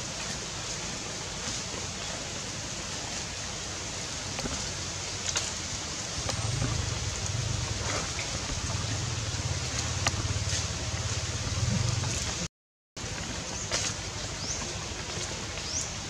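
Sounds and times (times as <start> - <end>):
steady outdoor hiss: 0.0 - 16.0
low rumble: 6.2 - 12.5.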